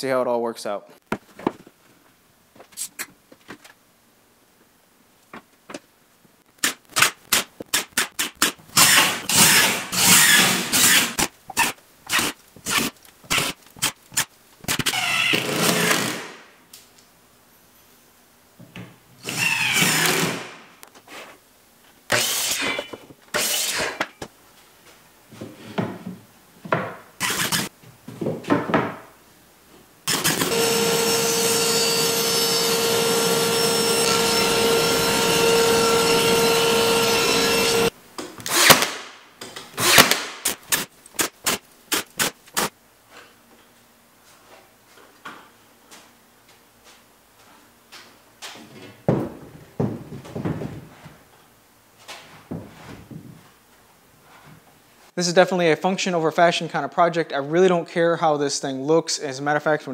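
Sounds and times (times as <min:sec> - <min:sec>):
power tool running steadily: 0:30.1 - 0:37.9.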